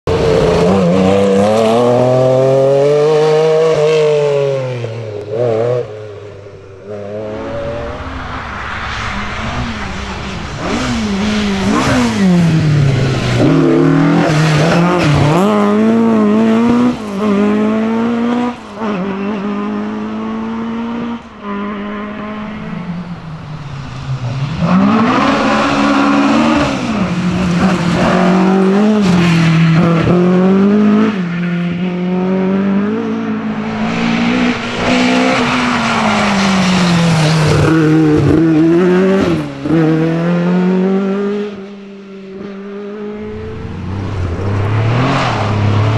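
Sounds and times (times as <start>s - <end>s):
rally cars passing at speed: 0.1s - 45.9s
engines revving through gear changes: 10.6s - 22.4s, 24.4s - 41.6s.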